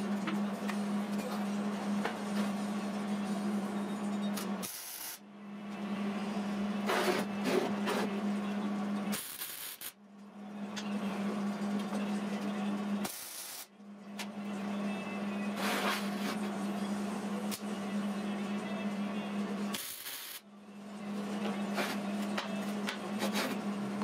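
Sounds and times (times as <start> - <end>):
welding arc buzzing crackle: 4.6 - 5.2, 9.1 - 10.0, 13.0 - 13.7, 19.7 - 20.4.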